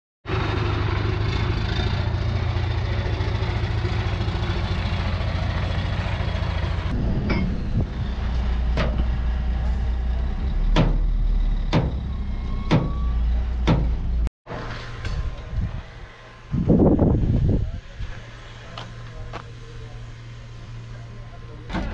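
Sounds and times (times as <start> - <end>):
diesel truck engine idling: 0.3 - 14.3, 18.2 - 21.9
sharp knocks: 10.7 - 11.1, 11.7 - 12.0, 13.6 - 14.0.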